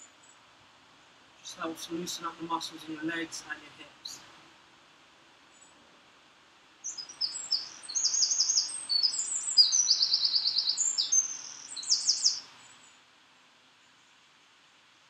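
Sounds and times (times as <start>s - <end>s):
songbird trilling and chirping: 6.8s - 12.8s.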